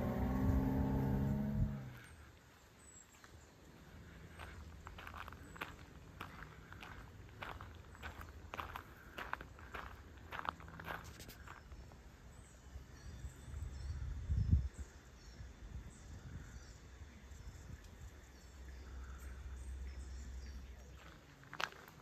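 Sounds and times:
faint birds chirping: 0.0s - 22.0s
footsteps on gravel: 3.1s - 11.8s, 20.8s - 22.0s
wind rumbling on microphone: 13.0s - 18.3s.

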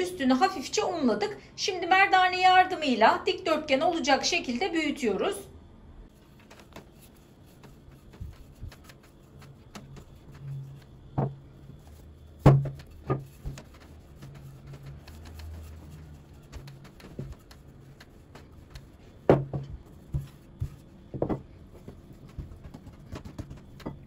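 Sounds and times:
rolling pin rumbling on dough: 6.2s - 24.0s
wooden knocks: 11.1s - 11.4s, 12.4s - 13.6s, 19.3s - 21.5s.

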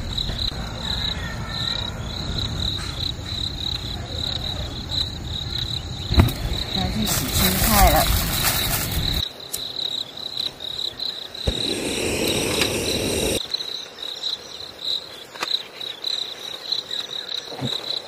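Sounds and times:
cicadas singing: 0.0s - 18.0s
rushing noise: 11.5s - 13.4s.

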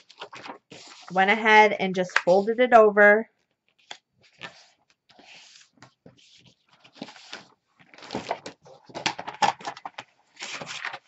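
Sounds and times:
paper rustling and sliding: 0.0s - 2.5s, 3.8s - 9.0s, 10.3s - 11.0s.

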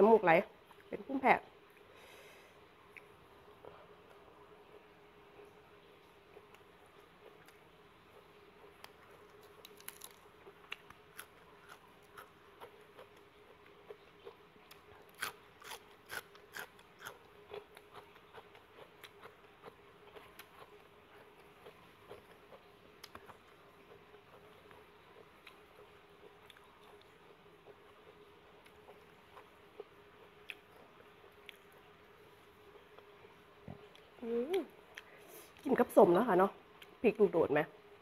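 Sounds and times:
faint steady hum: 0.0s - 38.0s
person chewing and crunching food: 6.1s - 31.9s.

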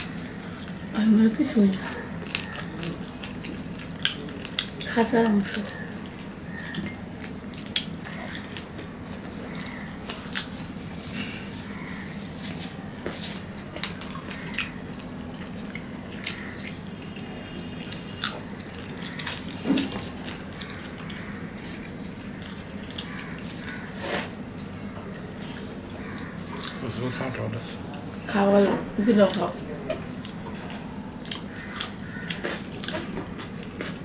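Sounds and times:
steady low hum: 0.0s - 34.0s
chewing and biting: 1.6s - 12.6s, 17.9s - 28.1s, 29.2s - 34.0s.

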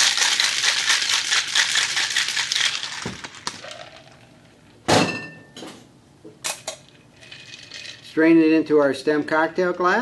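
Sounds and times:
ice rattling in cocktail shaker: 0.0s - 4.5s, 7.1s - 8.2s.

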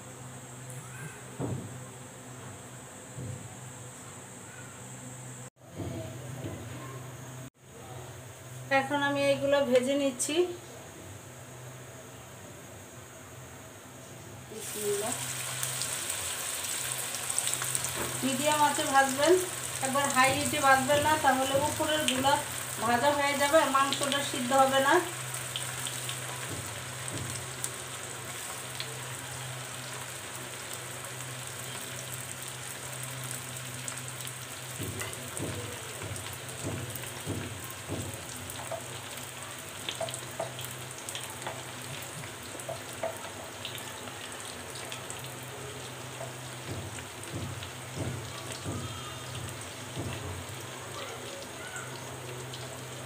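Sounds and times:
oil crackling and sizzling: 14.5s - 53.0s.

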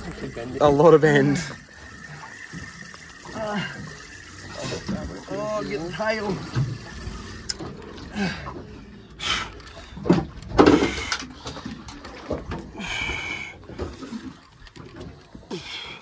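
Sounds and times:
wind and water rumble: 0.0s - 16.0s.

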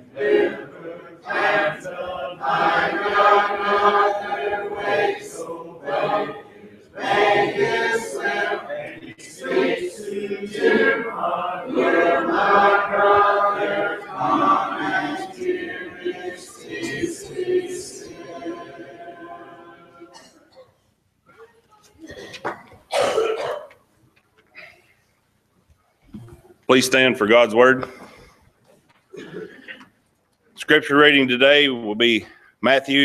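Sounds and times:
congregation singing a hymn: 0.0s - 20.5s.

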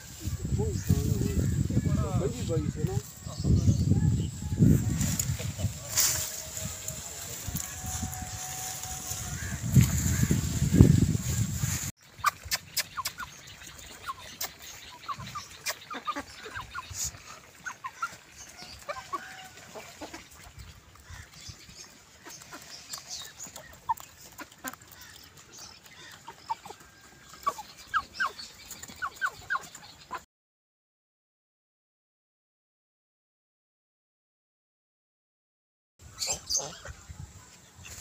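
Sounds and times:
chicks clucking: 4.6s - 18.2s, 22.2s - 30.2s.

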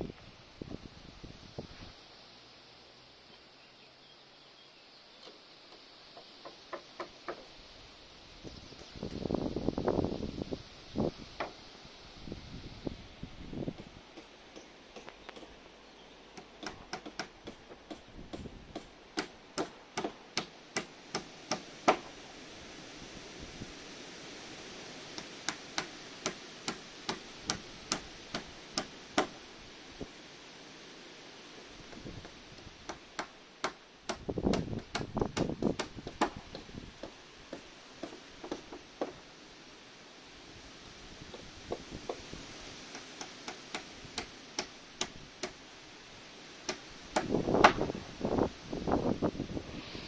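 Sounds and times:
hammer tapping nails: 16.4s - 22.1s
hammer nailing into wood: 16.6s - 22.1s, 32.9s - 39.2s.

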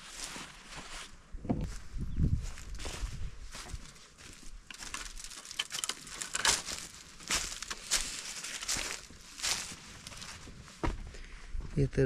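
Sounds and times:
footsteps on dirt: 0.0s - 11.9s.

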